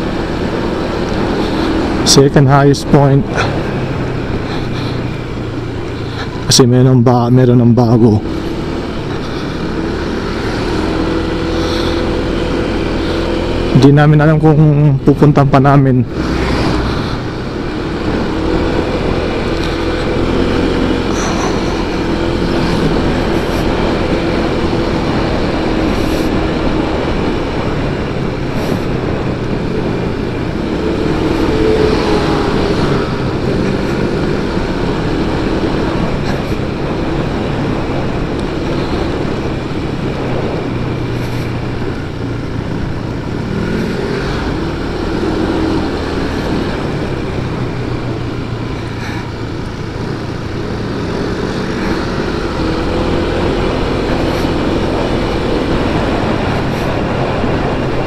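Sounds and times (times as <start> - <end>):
motorcycle engine running: 0.0 - 58.0
wind rushing over microphone: 14.7 - 58.0.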